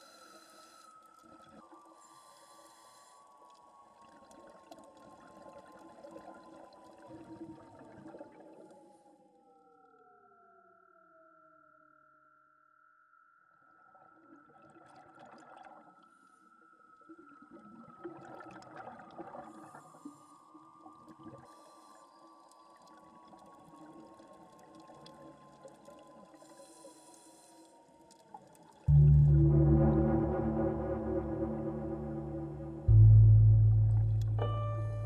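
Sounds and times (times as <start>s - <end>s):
watery bubbling wash: 17.1s - 20.1s
low ringing struck note: 28.9s - 35.0s
thin tone gliding down: 28.9s - 35.0s.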